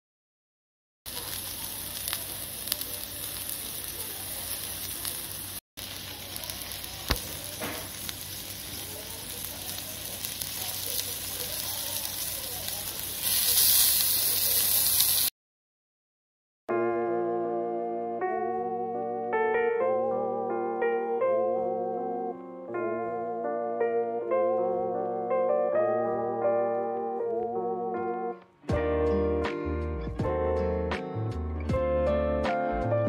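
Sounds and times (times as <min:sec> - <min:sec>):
meat sizzling on a griddle: 0:01.1 - 0:15.3.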